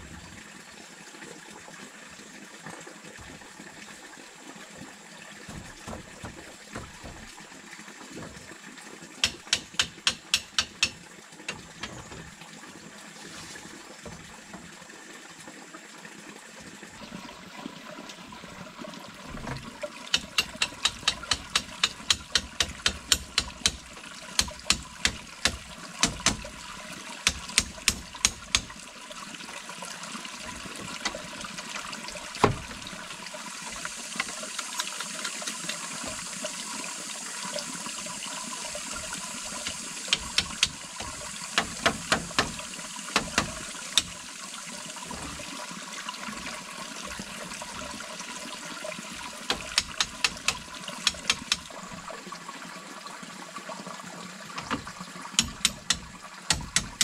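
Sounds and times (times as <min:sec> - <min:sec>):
rush like flowing water: 0:00.0 - 0:57.0
sharp knocks: 0:05.5 - 0:07.3, 0:09.2 - 0:12.2, 0:20.1 - 0:26.6, 0:27.3 - 0:28.8, 0:39.6 - 0:44.2, 0:49.5 - 0:51.7, 0:54.6 - 0:57.0.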